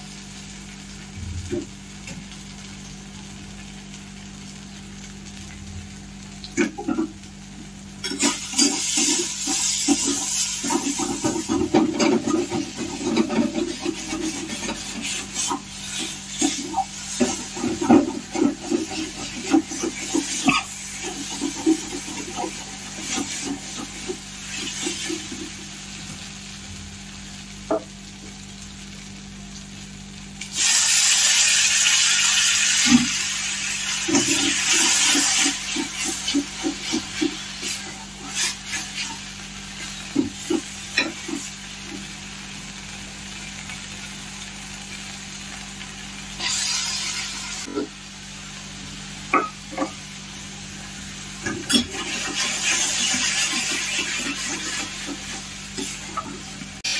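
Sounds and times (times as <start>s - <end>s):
loud sizzle: 0.0s - 56.9s
metal spatula scraping a pan: 8.0s - 25.4s, 51.4s - 56.9s.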